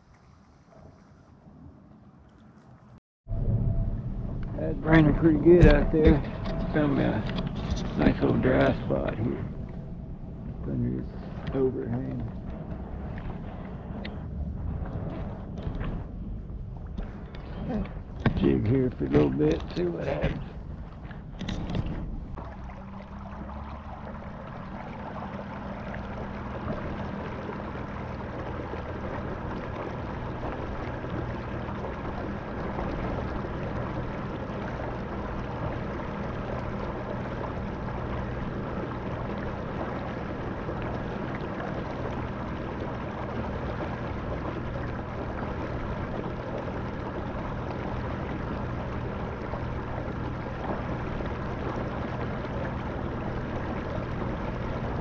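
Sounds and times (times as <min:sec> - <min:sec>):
water rushing past hull: 0:00.0 - 0:55.0
motor hum: 0:01.2 - 0:55.0.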